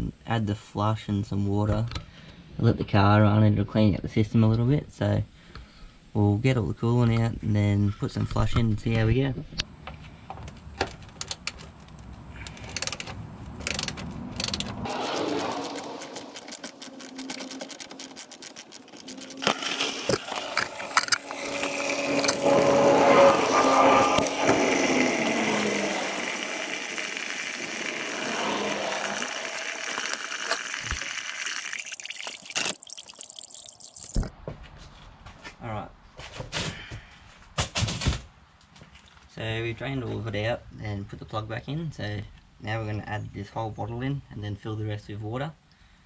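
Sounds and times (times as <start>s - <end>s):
liquid splashing into container: 25.8s - 34.3s.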